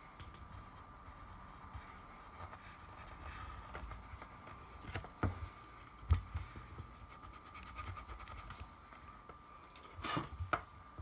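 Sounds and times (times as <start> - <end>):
pencils scratching on paper: 0.4 - 5.8, 6.5 - 8.7.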